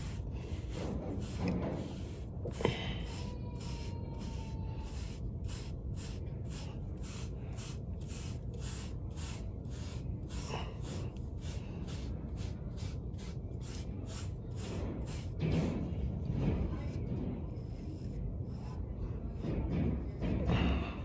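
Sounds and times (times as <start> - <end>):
hairbrush brushing hair: 0.0 - 15.4.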